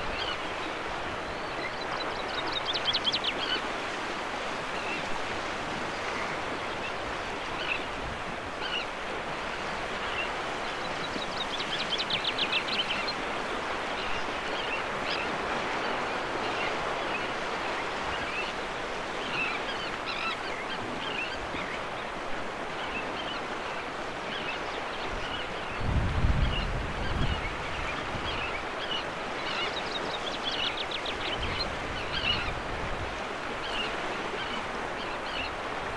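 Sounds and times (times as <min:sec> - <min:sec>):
chaffinch song: 0:00.0 - 0:03.7
choppy water and small waves: 0:00.0 - 0:35.9.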